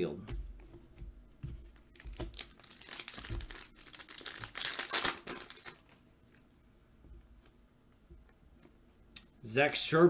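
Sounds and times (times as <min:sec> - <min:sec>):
foil wrapper crinkling: 0:02.0 - 0:06.0.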